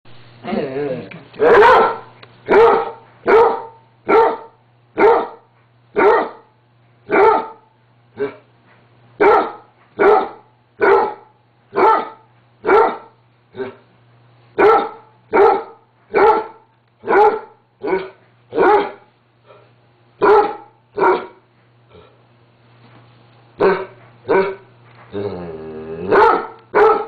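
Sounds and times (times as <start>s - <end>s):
dog barking deeply: 1.4s - 5.4s, 6.0s - 6.5s, 7.1s - 8.4s, 9.2s - 13.8s, 14.6s - 19.1s, 20.2s - 21.4s, 23.6s - 24.6s, 26.1s - 27.0s.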